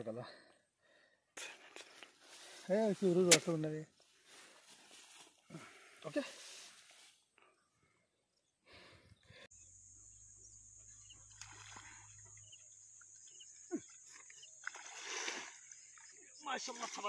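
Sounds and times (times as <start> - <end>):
grass rustling: 1.8 - 7.3
faint chirps: 7.2 - 17.0.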